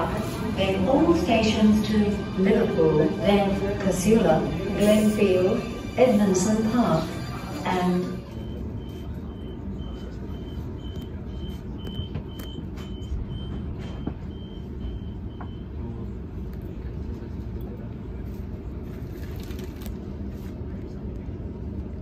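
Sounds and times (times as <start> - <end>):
train low rumble: 0.0 - 22.0
rapid high beeps: 8.0 - 15.8.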